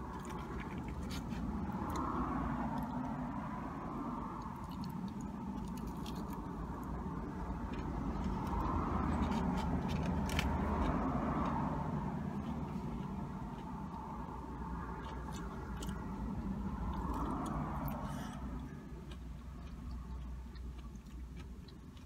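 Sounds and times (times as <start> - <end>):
road traffic rumble: 0.0 - 22.0.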